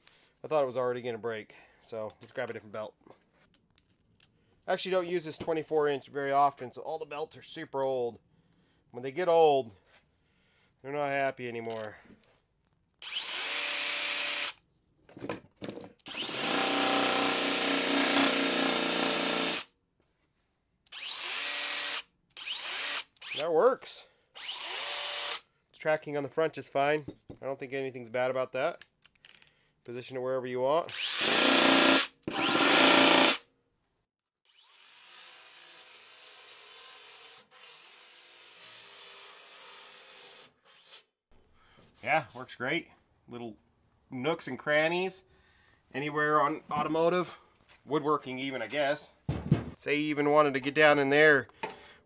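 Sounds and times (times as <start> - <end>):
power tool motor running: 30.9 - 33.4.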